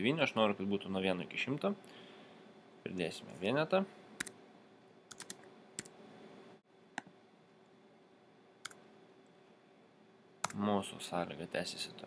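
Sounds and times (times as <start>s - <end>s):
keyboard keystrokes: 5.1s - 5.9s.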